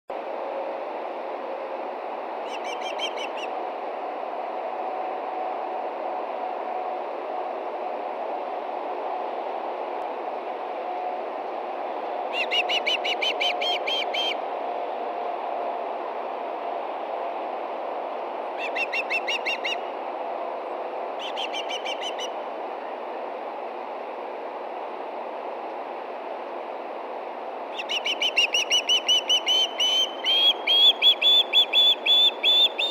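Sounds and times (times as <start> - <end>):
background hiss: 0.2 - 32.9
bird whistled chirps: 12.3 - 14.4, 27.8 - 32.9.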